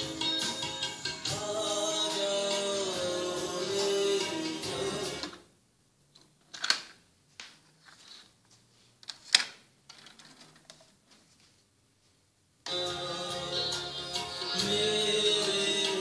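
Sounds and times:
tape music playback: 0.0 - 5.5, 12.7 - 16.0.

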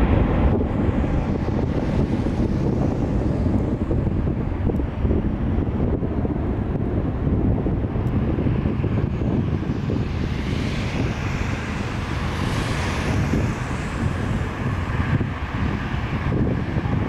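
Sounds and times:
jet engines rumbling: 0.0 - 17.0
wind buffeting microphone: 0.0 - 17.0.

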